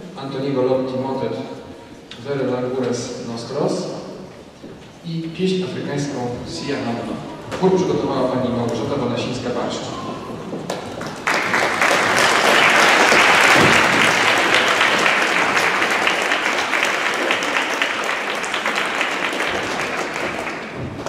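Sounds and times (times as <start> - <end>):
audience applauding: 10.6 - 21.0.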